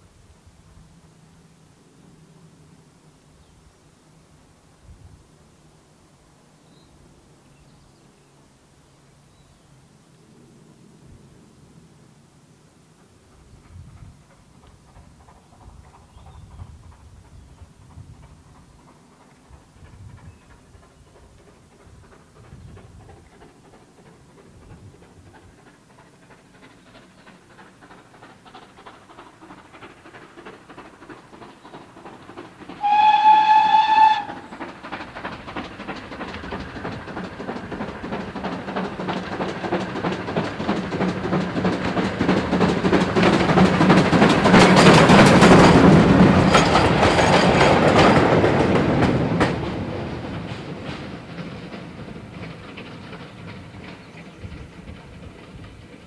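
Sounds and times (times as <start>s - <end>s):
train wheel noise: 9.7s - 56.0s
steam locomotive exhaust beats: 12.2s - 56.0s
steam locomotive whistle: 32.8s - 34.5s.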